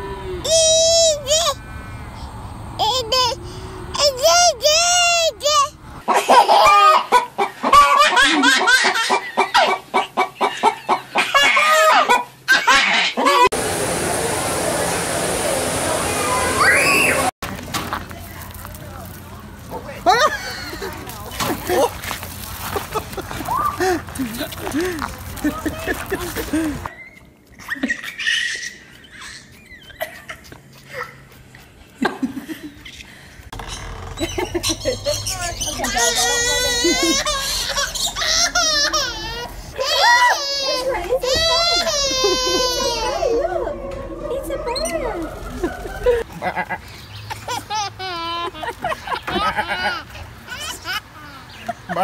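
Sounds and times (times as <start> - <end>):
people laughing hard: 22.6 - 26.9, 36.2 - 43.8, 45.4 - 50.2
toddler giggling: 34.1 - 43.7, 47.3 - 52.0.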